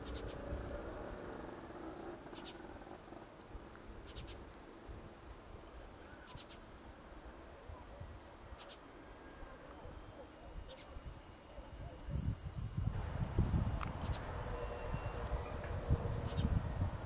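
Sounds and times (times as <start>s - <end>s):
bird dry clicking calls: 2.2s - 4.6s.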